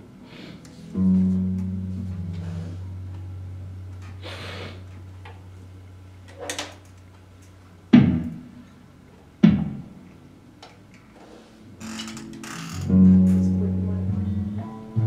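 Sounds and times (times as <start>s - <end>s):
sharp knocks: 8.0s - 8.5s, 9.4s - 9.9s.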